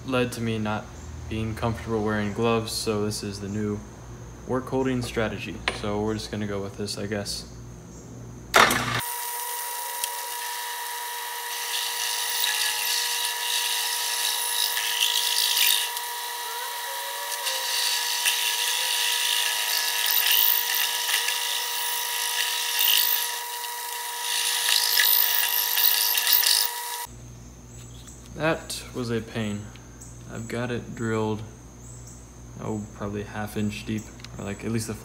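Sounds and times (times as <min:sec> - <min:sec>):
drill cutting metal on lathe: 0:09.0 - 0:27.1
drill bit squealing: 0:09.6 - 0:27.1.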